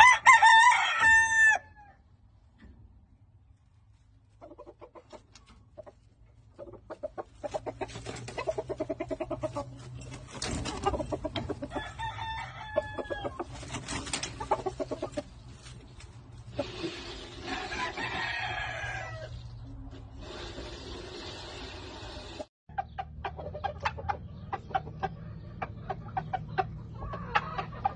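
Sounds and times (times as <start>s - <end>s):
high drawn-out chicken calls: 0.0s - 2.0s, 6.6s - 15.6s, 16.5s - 19.6s, 22.7s - 27.9s
chickens clucking: 4.1s - 18.0s, 22.2s - 27.9s.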